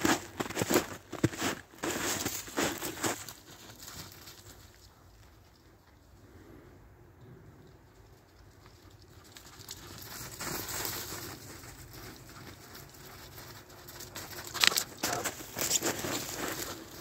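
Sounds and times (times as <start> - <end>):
dog paws crunching through snow: 0.0 - 5.4, 9.1 - 17.0.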